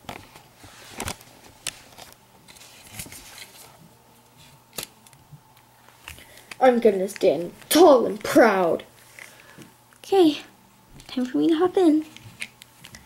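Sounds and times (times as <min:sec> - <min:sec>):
faint rustling and scraping: 0:00.1 - 0:04.7.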